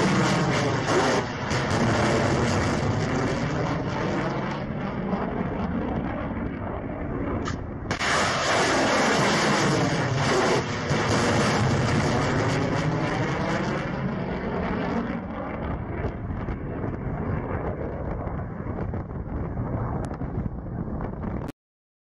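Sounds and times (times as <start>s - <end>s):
missiles launching roar: 0.0s - 4.7s, 7.4s - 15.1s.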